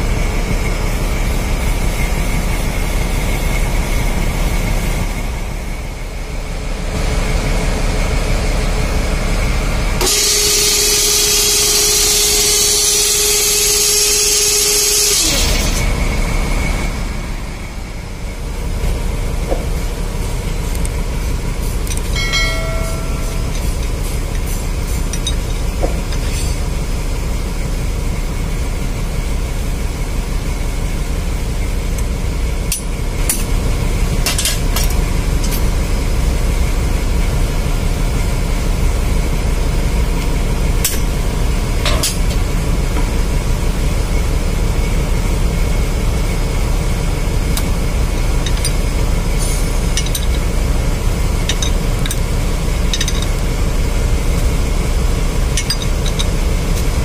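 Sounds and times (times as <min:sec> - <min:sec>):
engine-room machinery drone: 0:00.0 - 0:57.0
spanner clinking on bolts: 0:21.8 - 0:26.7, 0:48.4 - 0:50.7, 0:51.3 - 0:53.5, 0:55.4 - 0:56.9.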